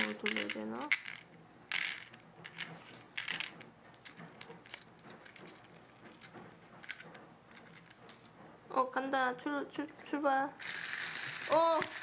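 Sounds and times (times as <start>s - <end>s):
clockwork winder clicking: 10.6s - 12.0s.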